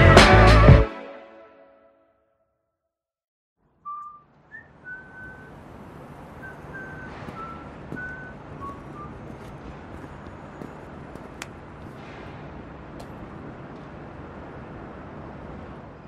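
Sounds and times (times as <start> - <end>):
traffic and street noise: 3.6 - 16.0
person whistling a tune: 3.8 - 5.5, 6.4 - 9.3.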